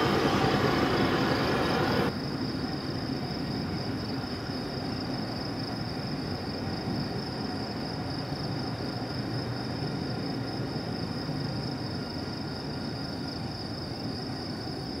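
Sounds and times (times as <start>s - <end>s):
diesel locomotives rumbling: 0.0s - 2.1s
insects droning: 0.0s - 15.0s.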